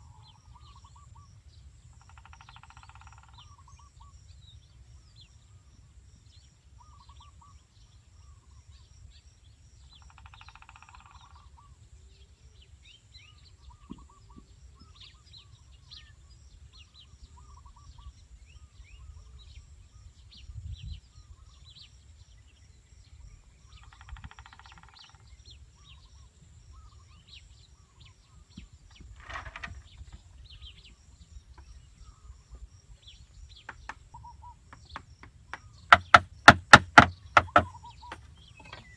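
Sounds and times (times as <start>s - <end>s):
small birds chirping: 0.0s - 38.9s
bird trills: 10.0s - 11.7s, 23.8s - 26.1s, 33.7s - 38.9s
sharp knock: 35.9s - 37.8s.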